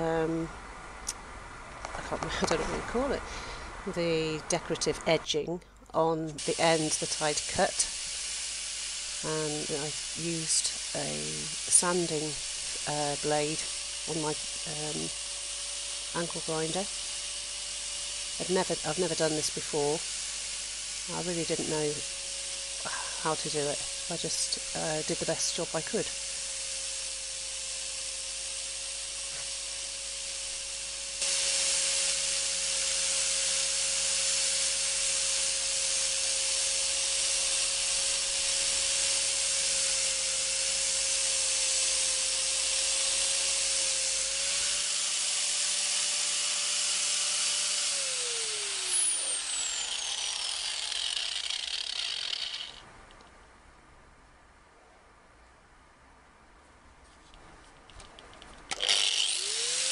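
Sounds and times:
disc sanding wood: 6.0 - 52.8, 58.7 - 59.9
angle grinder motor whining: 6.4 - 52.8, 58.7 - 59.9.

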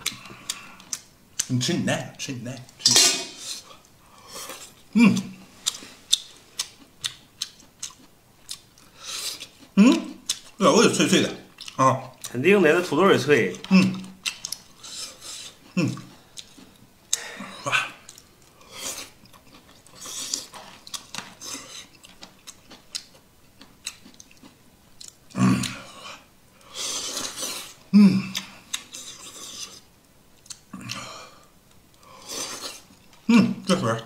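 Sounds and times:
chewing and mouth noises: 3.4 - 10.6, 11.5 - 12.4, 13.6 - 31.1
person humming: 27.9 - 28.4.

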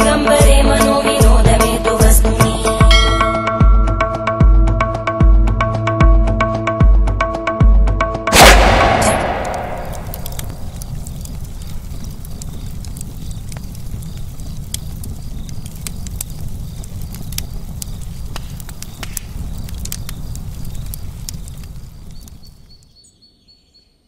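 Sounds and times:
deep boom: 8.3 - 11.5
low rumble: 8.3 - 11.5
fire crackling: 8.3 - 23.0.

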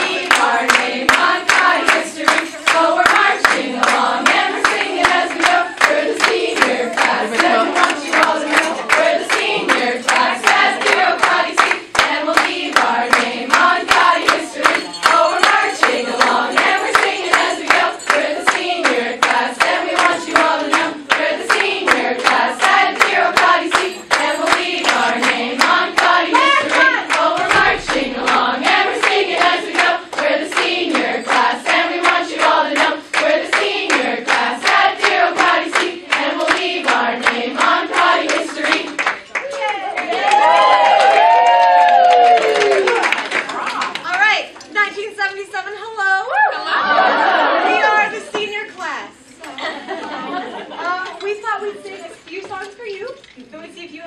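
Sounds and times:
women singing in unison: 0.0 - 42.8
hands clapping a steady beat: 0.0 - 44.8.

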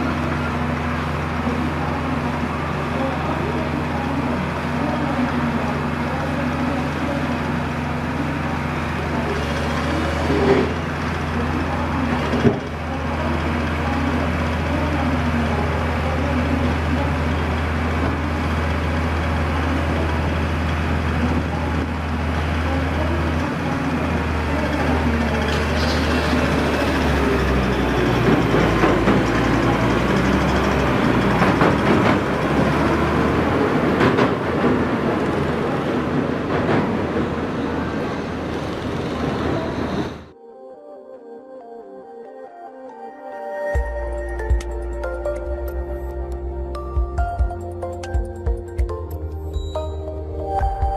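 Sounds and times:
diesel engine humming: 0.0 - 40.4, 43.8 - 50.9.

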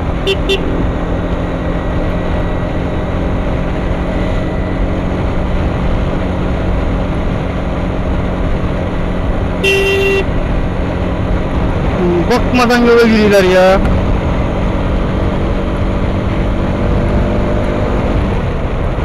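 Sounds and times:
motorcycle engine running: 0.0 - 12.5
horn beep: 0.2 - 0.7, 9.6 - 10.3.

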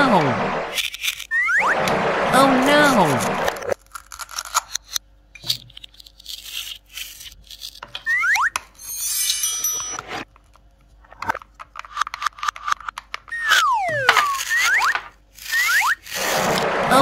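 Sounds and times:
high tinkling: 8.8 - 10.2
wet plastic squeaks: 13.3 - 16.2.

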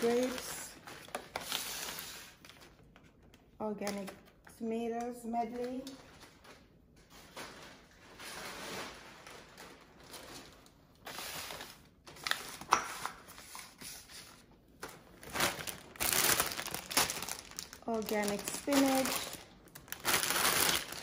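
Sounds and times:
plastic bags crinkling: 0.0 - 2.8, 5.6 - 12.7, 14.8 - 21.0.

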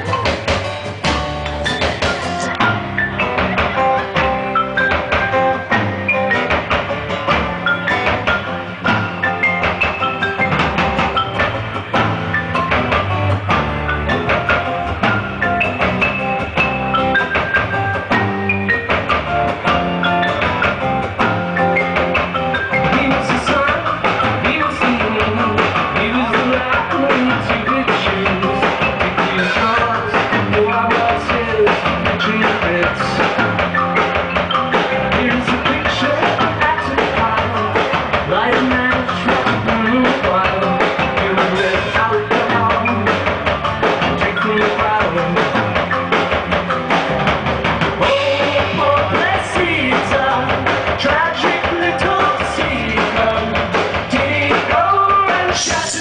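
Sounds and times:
drums: 0.0 - 56.0
electric bass: 0.0 - 56.0.

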